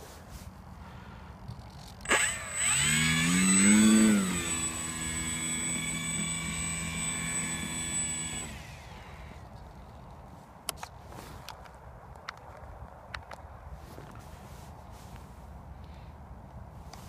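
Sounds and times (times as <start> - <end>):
model plane electric motor: 1.8 - 9.5.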